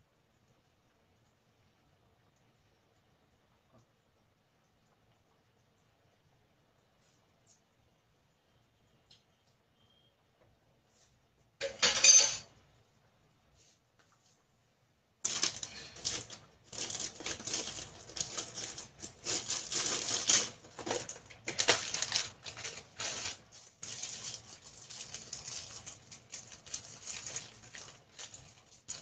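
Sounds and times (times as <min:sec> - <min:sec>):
curry bubbling in a pot: 0:15.2 - 0:29.0.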